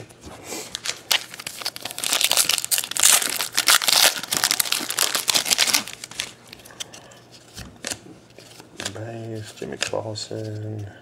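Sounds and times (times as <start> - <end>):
foil wrapper crinkling and tearing: 0.7 - 6.6.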